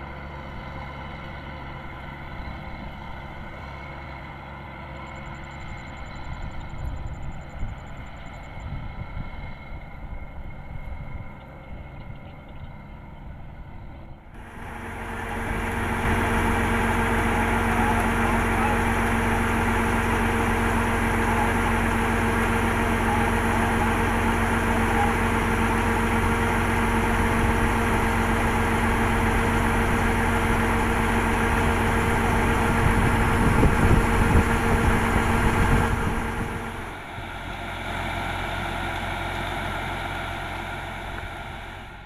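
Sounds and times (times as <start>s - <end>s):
combine harvester diesel engine: 0.0s - 42.0s
higher hum: 14.4s - 42.0s.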